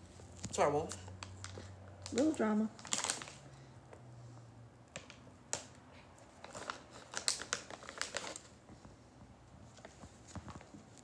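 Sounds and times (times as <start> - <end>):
plastic package crinkling: 0.4 - 3.5, 4.9 - 8.6.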